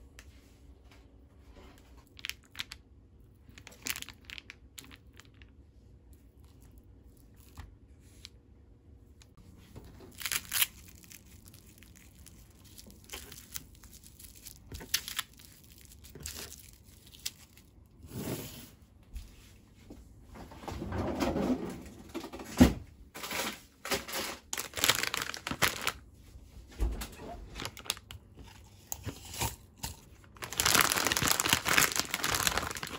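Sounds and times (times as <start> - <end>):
cling wrap crinkling and tearing: 3.6 - 5.4, 10.0 - 17.8, 24.0 - 26.0, 27.6 - 28.1, 30.3 - 32.9.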